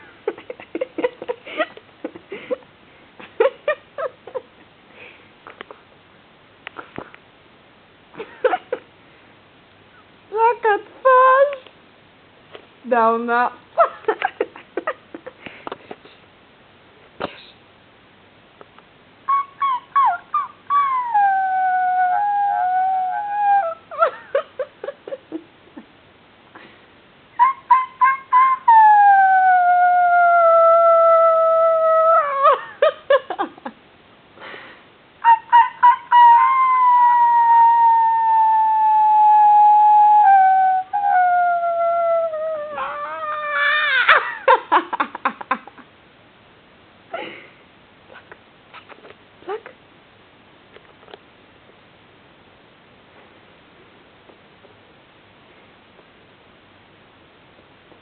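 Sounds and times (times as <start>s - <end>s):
puppy howling and yipping: 19.3s - 24.7s, 27.4s - 32.9s, 35.2s - 44.5s.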